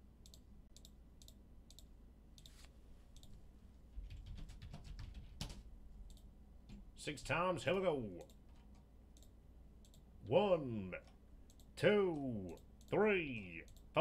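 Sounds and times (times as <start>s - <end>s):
computer mouse clicks: 0.2s - 3.4s, 4.1s - 6.3s, 8.2s - 10.0s
keyboard typing: 4.0s - 6.8s.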